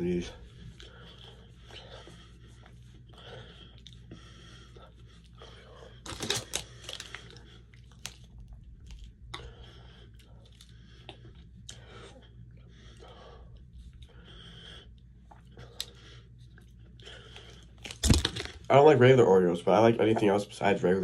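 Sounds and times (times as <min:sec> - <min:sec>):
person chewing and crunching: 0:05.2 - 0:12.6.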